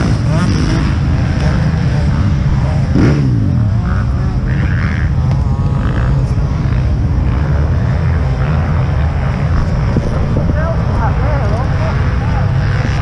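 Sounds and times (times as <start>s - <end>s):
motorcycle engine revving: 0.0s - 13.0s
wind buffeting microphone: 9.1s - 13.0s.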